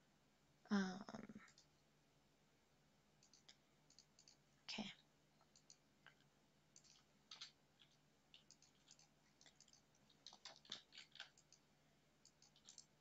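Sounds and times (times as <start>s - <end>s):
faint low hum: 0.0s - 13.0s
computer mouse clicks: 1.4s - 1.8s, 3.2s - 4.4s, 5.4s - 13.0s.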